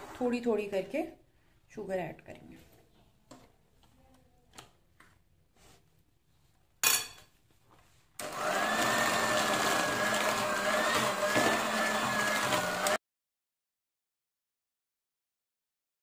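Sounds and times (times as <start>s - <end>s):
electric hand mixer whining: 8.2s - 13.0s.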